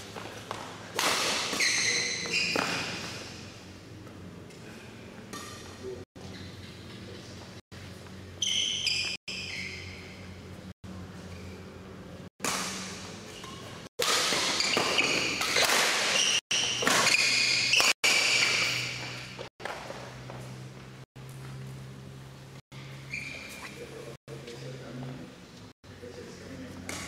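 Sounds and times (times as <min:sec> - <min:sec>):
racket hitting shuttlecock: 0:00.0 - 0:03.3, 0:12.4 - 0:20.2
shoes squeaking on court: 0:00.0 - 0:03.4, 0:06.2 - 0:10.6, 0:13.0 - 0:21.8, 0:23.0 - 0:24.7.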